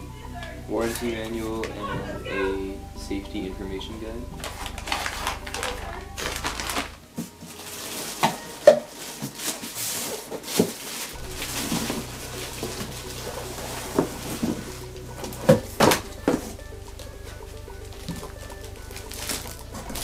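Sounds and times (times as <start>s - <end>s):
plastic packaging crinkling: 4.4s - 20.0s.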